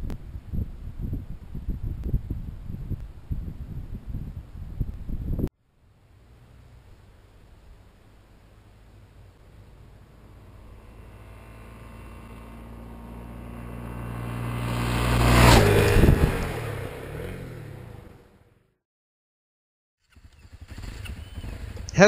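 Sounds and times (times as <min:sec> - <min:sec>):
dirt bike engine passing: 0:08.7 - 0:18.6, 0:20.0 - 0:22.0.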